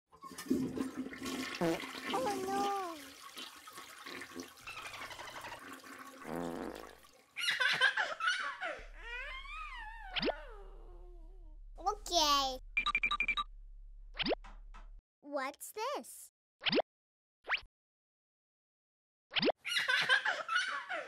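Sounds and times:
toilet flushing: 0.1s - 7.6s.

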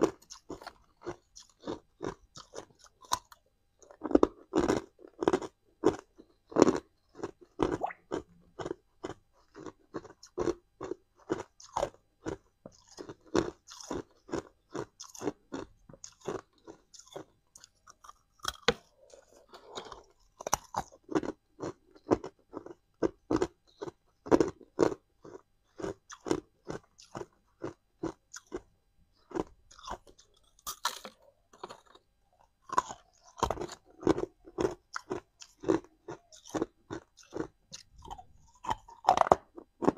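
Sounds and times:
ice being chewed: 0.0s - 39.9s.

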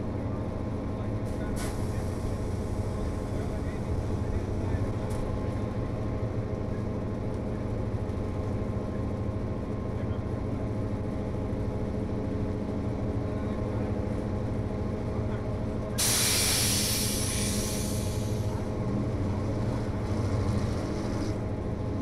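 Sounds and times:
loud hiss: 16.0s - 18.5s.

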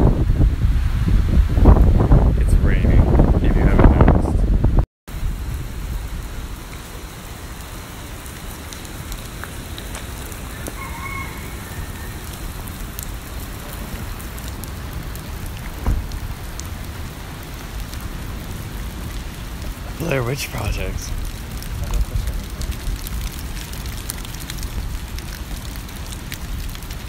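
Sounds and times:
steady rain falling: 5.1s - 27.0s
thump: 15.8s - 16.1s.

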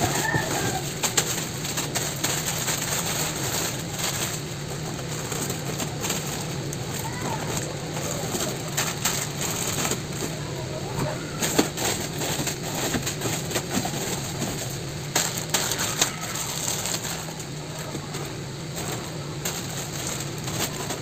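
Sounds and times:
plastic packets crinkling: 0.0s - 21.0s.

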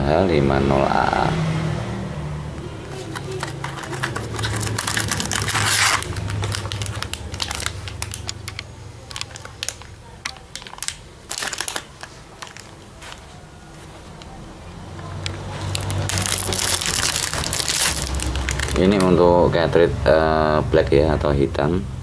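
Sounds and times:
plastic packaging crinkling: 2.9s - 19.2s.

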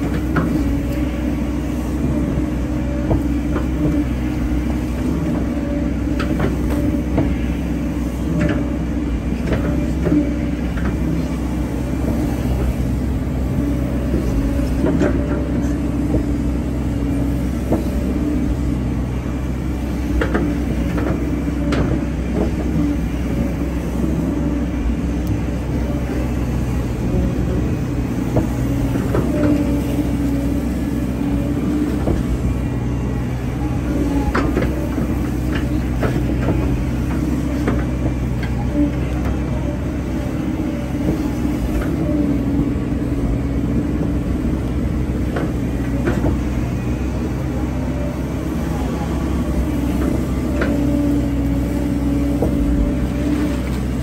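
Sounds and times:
machine knocks and clunks: 0.0s - 1.1s, 1.9s - 7.6s, 14.0s - 16.6s, 17.4s - 18.7s, 19.9s - 25.5s, 26.3s - 46.8s
diesel excavator engine running: 0.0s - 54.0s.

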